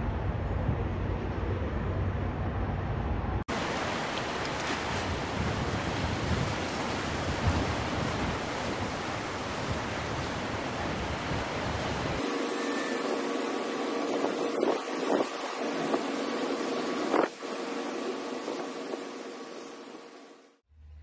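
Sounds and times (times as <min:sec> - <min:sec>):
low rumbling background: 0:00.0 - 0:03.8
steady rushing noise: 0:00.0 - 0:20.5.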